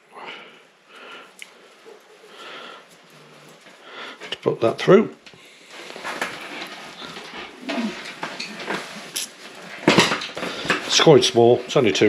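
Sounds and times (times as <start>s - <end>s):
nylon fabric rustling: 1.6s - 12.0s.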